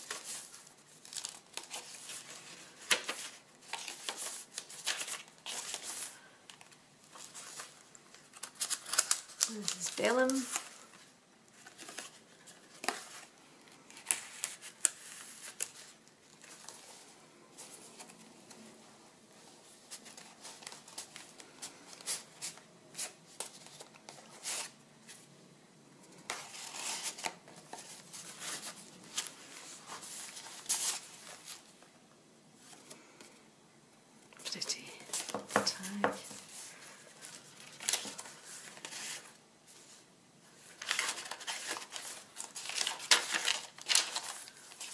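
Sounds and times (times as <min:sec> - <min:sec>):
paper rustling and crinkling: 0:00.0 - 0:18.8, 0:19.4 - 0:25.3, 0:26.0 - 0:31.8, 0:34.5 - 0:44.9
pages flicking and tapping: 0:01.1 - 0:10.8, 0:40.8 - 0:44.9.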